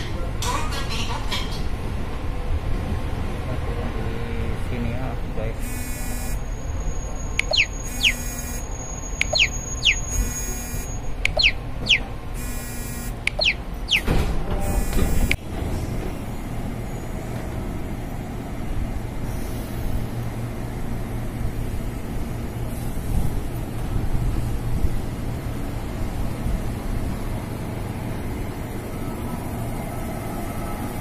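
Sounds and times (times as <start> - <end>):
train rumbling: 0.0 - 5.8, 13.2 - 31.0
electronic train chime: 5.6 - 11.6.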